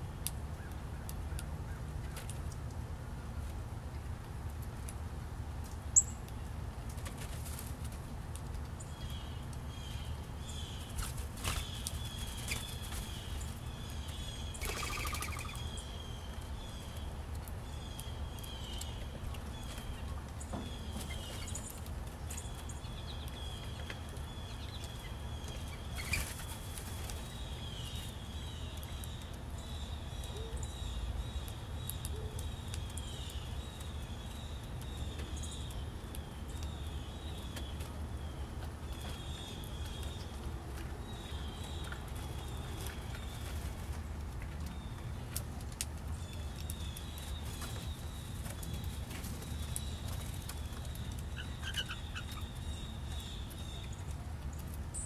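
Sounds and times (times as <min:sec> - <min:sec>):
bird wings flapping: 0:14.6 - 0:15.6.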